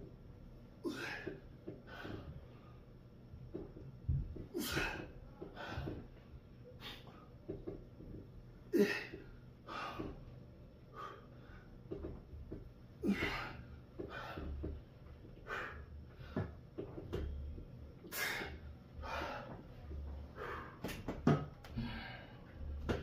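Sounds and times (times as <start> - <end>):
person breathing hard: 4.6 - 6.1, 10.9 - 11.8, 13.0 - 14.8, 15.4 - 16.6, 18.1 - 19.6, 20.3 - 21.0, 21.7 - 22.8.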